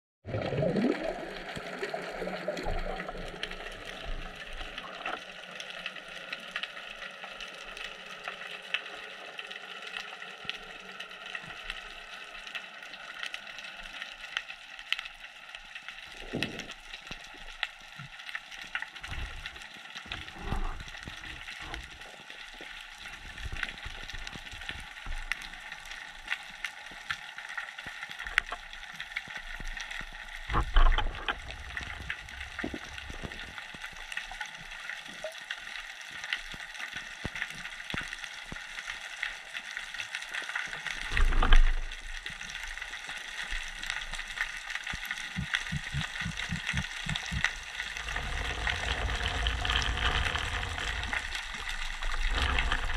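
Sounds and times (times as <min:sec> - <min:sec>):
underwater crackle of clicks: 0:00.4 - 0:52.9
low underwater thumps: 0:45.3 - 0:51.3.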